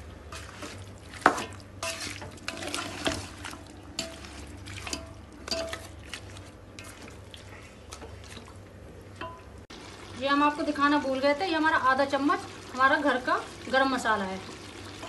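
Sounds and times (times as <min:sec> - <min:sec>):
wooden spatula scraping metal pot: 0:00.3 - 0:08.2.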